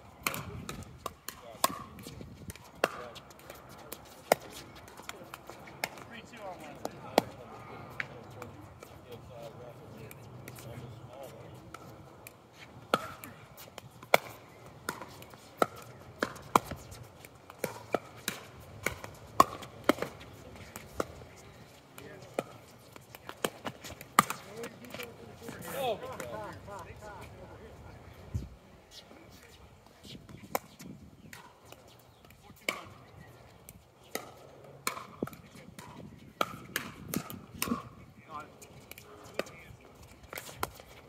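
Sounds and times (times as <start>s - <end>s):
paddles hitting plastic ball: 0.2s - 9.3s, 11.7s - 27.3s, 30.4s - 37.9s.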